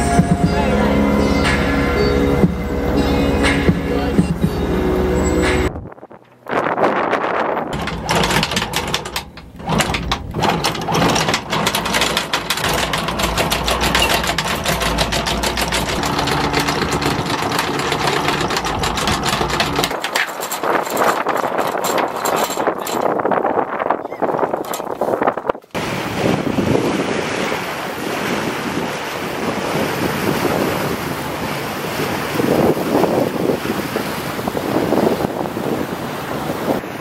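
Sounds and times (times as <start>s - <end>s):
windlass motor humming: 0.0s - 37.0s
anchor chain clattering: 7.7s - 23.7s, 24.4s - 25.4s.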